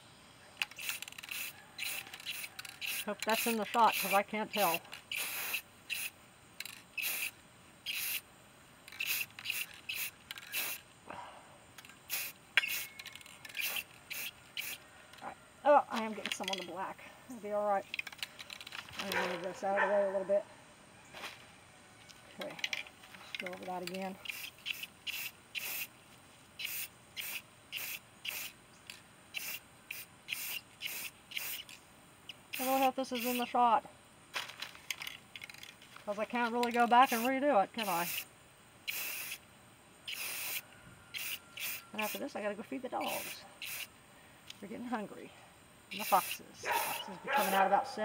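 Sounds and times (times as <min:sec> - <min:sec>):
spray paint can hissing: 0:00.6 - 0:08.2, 0:08.9 - 0:10.9, 0:12.1 - 0:14.8, 0:23.8 - 0:25.9, 0:26.6 - 0:28.6, 0:29.3 - 0:31.8, 0:32.4 - 0:33.5, 0:36.6 - 0:39.4, 0:40.1 - 0:42.2, 0:43.0 - 0:43.9, 0:45.9 - 0:47.7.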